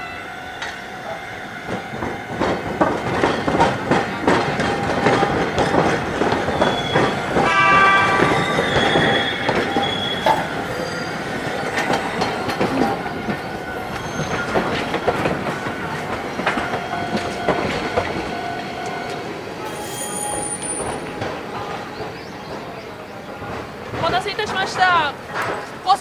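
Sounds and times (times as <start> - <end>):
tram wheels clacking over rails: 0.0 - 26.0
wheel squeal: 6.4 - 12.7, 13.8 - 15.2, 19.6 - 21.2.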